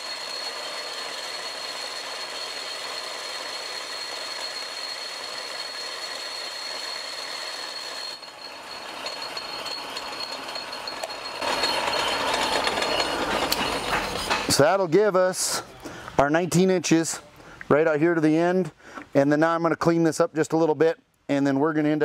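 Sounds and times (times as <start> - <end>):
metal lathe cutting steel: 0.0 - 14.6.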